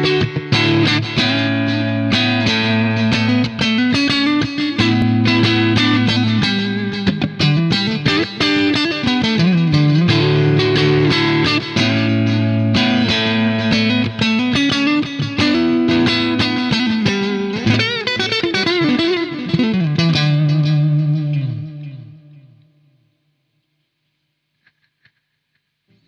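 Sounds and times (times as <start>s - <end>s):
electric guitar lead line: 0.0s - 22.9s.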